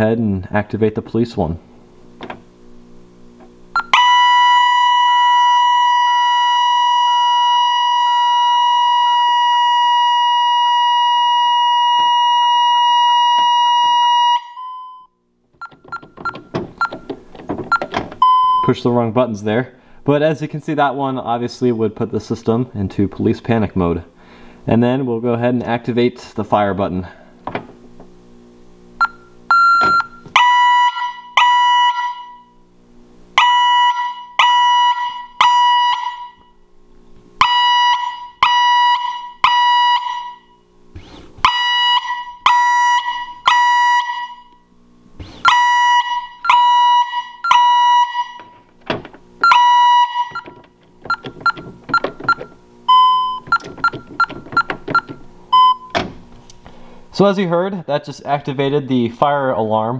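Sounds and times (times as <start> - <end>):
fire alarm siren beeps: 3.8 - 17.1, 17.7 - 18.7, 29.0 - 32.6, 33.4 - 36.6, 37.4 - 40.7, 41.4 - 44.7, 45.4 - 48.6, 49.4 - 56.0
keypad key-press beeps: 15.6 - 18.7, 50.3 - 56.0.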